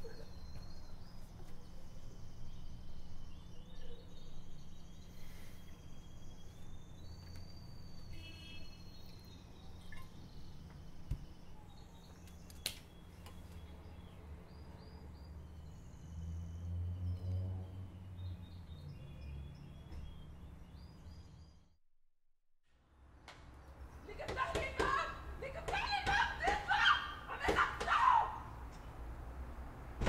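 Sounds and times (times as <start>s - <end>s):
small birds chirping: 0.0s - 21.7s.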